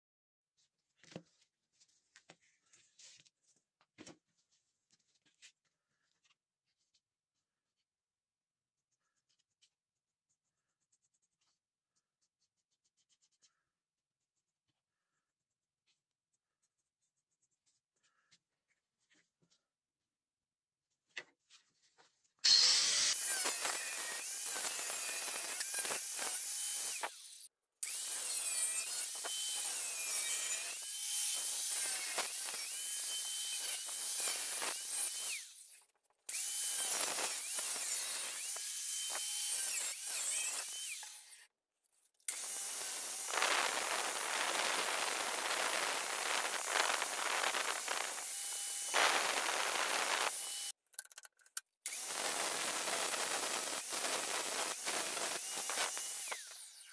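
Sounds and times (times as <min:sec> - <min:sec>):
angle grinder cutting steel: 0:22.4 - 0:41.5, 0:42.3 - 0:50.8, 0:51.9 - 0:56.9.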